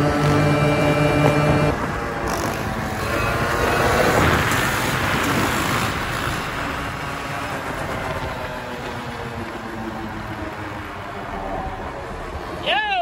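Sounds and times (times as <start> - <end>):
dirt bike engine running: 0.0 - 2.8
wind-like rushing noise: 0.9 - 9.6.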